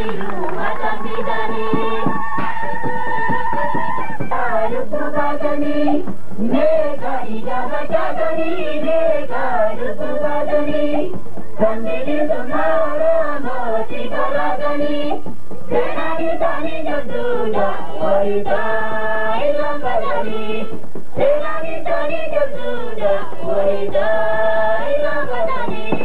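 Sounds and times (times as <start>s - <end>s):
group singing in chorus: 0.0s - 26.0s.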